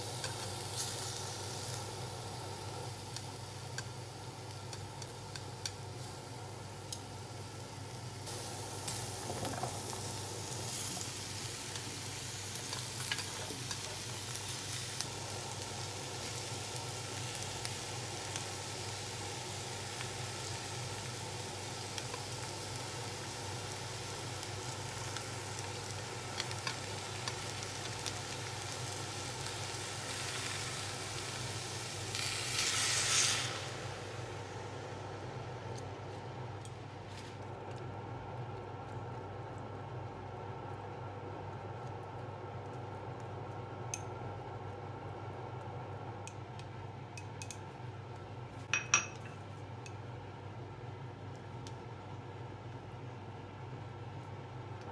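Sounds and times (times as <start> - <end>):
beef sizzling in a frying pan: 0.0 - 35.6
liquid hissing in hot pan: 0.0 - 35.6.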